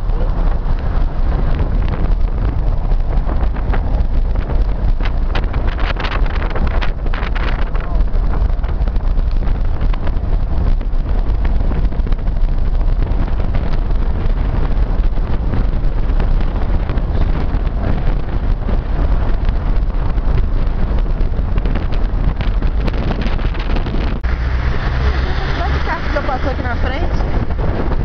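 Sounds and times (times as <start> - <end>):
moving car rumble: 0.0 - 28.0
wind buffeting microphone: 0.0 - 28.0.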